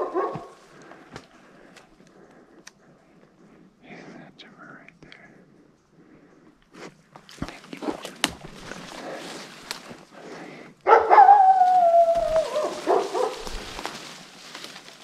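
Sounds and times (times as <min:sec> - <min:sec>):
footsteps through undergrowth: 0:00.2 - 0:01.8, 0:07.2 - 0:10.4, 0:11.3 - 0:15.0
brush rustling: 0:06.7 - 0:10.6, 0:11.3 - 0:15.0
loud howl sliding down: 0:11.1 - 0:13.8.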